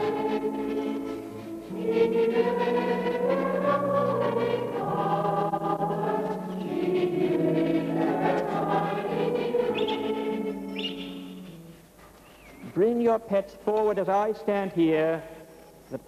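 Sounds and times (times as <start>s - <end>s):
congregation singing a hymn: 0.0s - 11.8s.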